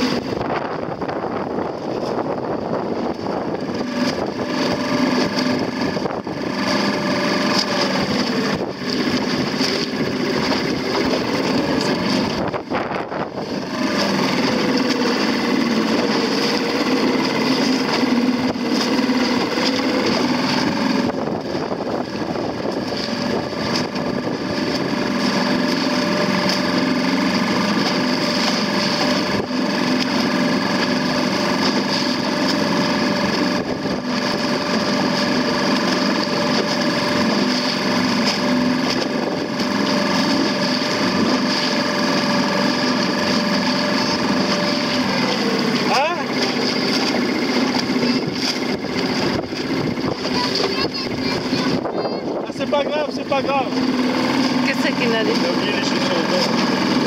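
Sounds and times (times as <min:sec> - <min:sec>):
wind on microphone: 0:00.0 - 0:45.9, 0:46.8 - 0:53.0
motorboat engine running: 0:00.0 - 0:57.0
water rushing: 0:00.0 - 0:57.0.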